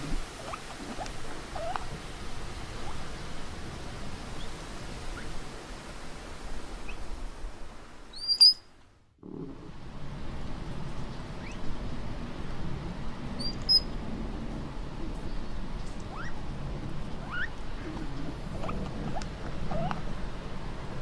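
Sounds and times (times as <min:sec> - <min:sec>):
animal squeaks sweeping upward: 0:08.2 - 0:08.6, 0:17.2 - 0:17.5
high chirp: 0:08.2 - 0:08.6
steady low rumble: 0:09.0 - 0:21.0.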